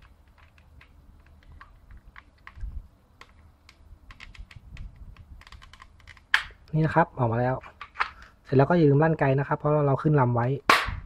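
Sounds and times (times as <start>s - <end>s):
clicks of toy pistol handling: 0.0s - 6.7s, 7.6s - 8.4s.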